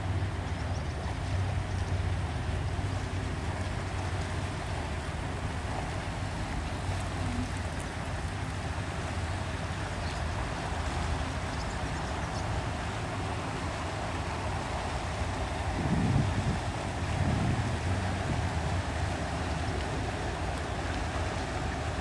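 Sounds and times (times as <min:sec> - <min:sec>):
water noise: 0:00.0 - 0:22.0
wind: 0:00.0 - 0:22.0
ship engine drone: 0:01.4 - 0:22.0.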